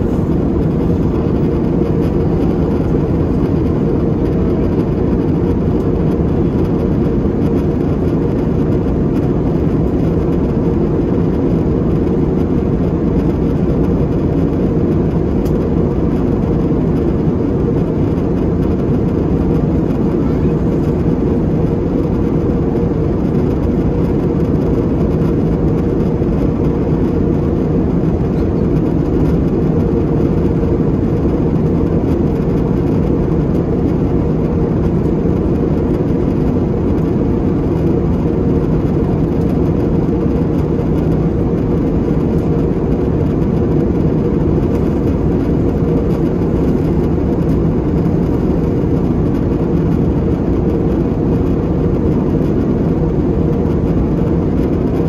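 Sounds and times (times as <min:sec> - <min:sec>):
jet airliner cabin drone: 0:00.0 - 0:55.0.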